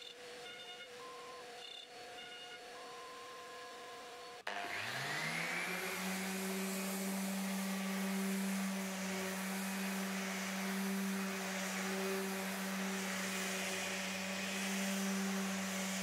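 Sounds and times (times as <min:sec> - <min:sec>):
orbital sander running: 0:03.4 - 0:16.0.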